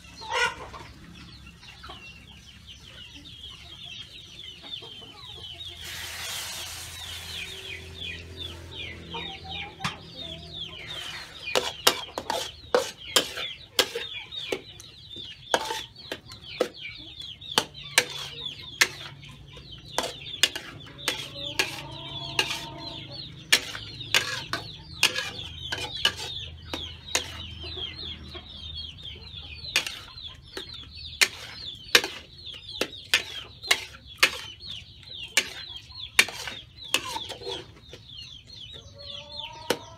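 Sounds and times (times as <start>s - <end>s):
metal spatula scraping a wok: 5.8s - 7.8s, 10.8s - 14.6s, 15.5s - 16.8s, 17.6s - 27.6s, 29.7s - 37.8s.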